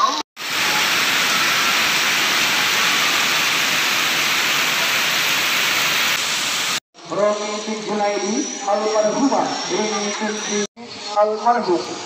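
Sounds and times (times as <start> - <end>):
heavy rain: 0.4 - 6.8
water pouring and splashing: 0.4 - 6.8.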